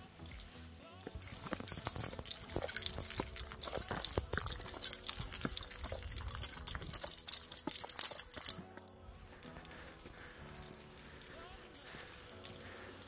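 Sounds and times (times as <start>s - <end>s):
climbing gear jingling and clinking: 0.0s - 13.0s
footsteps on loose gravel: 1.0s - 12.8s.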